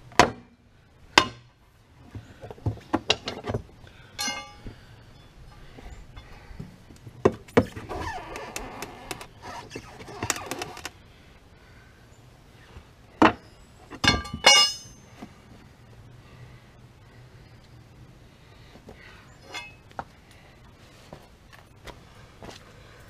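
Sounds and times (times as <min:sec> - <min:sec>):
loud ringing metallic clanks: 0:04.2 - 0:04.7, 0:14.0 - 0:15.0.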